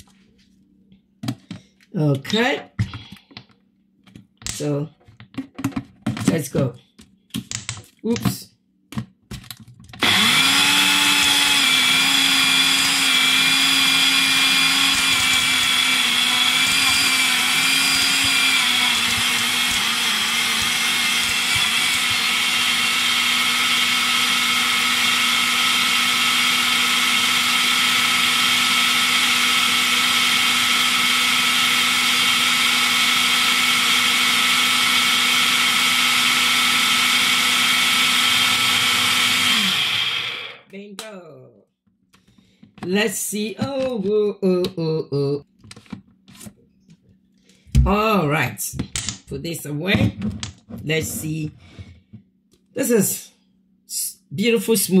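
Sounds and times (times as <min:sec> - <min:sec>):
blender motor blending fruit: 0:10.0 - 0:40.7.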